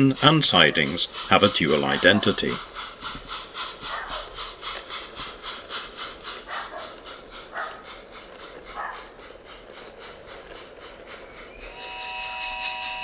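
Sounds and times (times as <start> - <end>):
model steam locomotive chuffing: 0.0 - 13.0
dog barking: 3.9 - 4.3, 6.5 - 7.8, 8.8 - 9.0.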